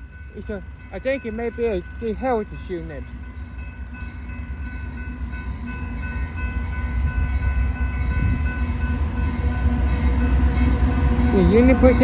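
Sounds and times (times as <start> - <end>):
diesel locomotive rumble: 0.0 - 12.0
grade-crossing bell ringing: 0.0 - 12.0.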